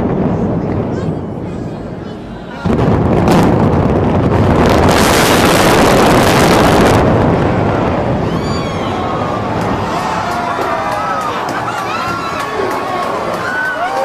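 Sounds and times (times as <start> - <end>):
onlookers' voices: 0.0 - 3.6, 6.7 - 14.0.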